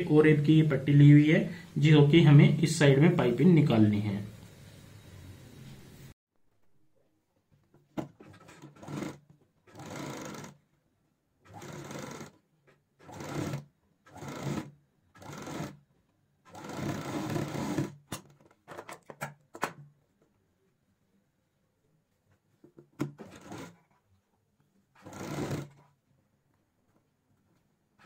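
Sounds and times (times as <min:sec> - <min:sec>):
sewing machine running: 0:08.4 - 0:10.6, 0:11.5 - 0:12.4, 0:13.0 - 0:15.8, 0:16.5 - 0:18.0, 0:23.2 - 0:23.8, 0:25.0 - 0:25.8.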